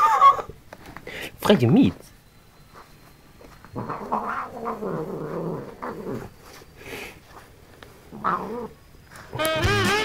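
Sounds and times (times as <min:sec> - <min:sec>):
cat growling cry: 0:00.0 - 0:00.5, 0:03.8 - 0:06.3, 0:08.1 - 0:08.8.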